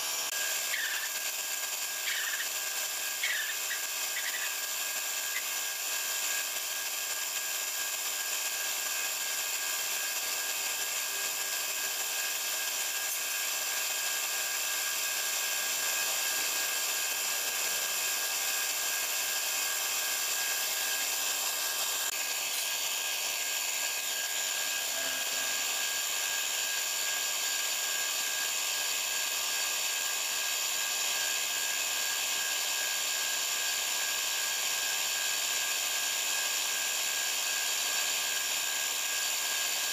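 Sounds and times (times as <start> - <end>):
paint spray gun hissing: 0.0 - 15.2, 15.8 - 26.3
machine whine: 0.0 - 32.1.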